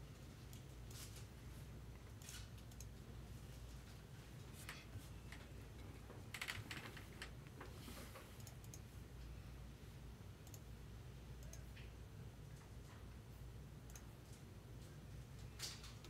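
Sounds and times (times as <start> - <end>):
faint clicks: 10.4 - 10.6.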